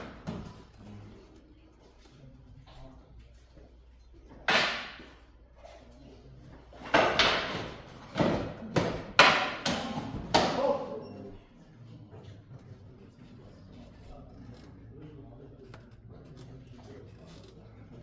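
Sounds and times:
wooden swords clacking: 0:06.8 - 0:10.8.

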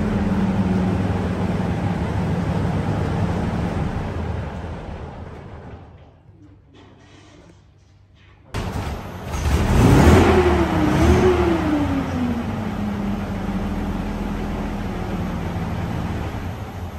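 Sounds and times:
tank engine starting and revving: 0:00.0 - 0:05.9, 0:08.6 - 0:16.9
engine idling: 0:00.0 - 0:06.0.

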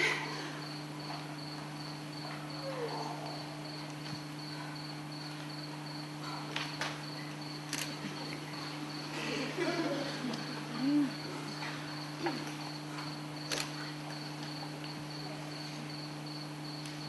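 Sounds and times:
pulsing cricket-like chirping: 0:00.0 - 0:17.0
steady low hum: 0:00.0 - 0:17.0.

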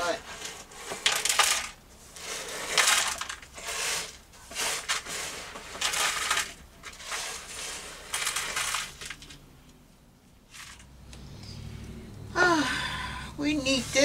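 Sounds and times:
glass bits scraping and clinking: 0:00.0 - 0:09.4
hand brush sweeping glass: 0:02.0 - 0:08.7.

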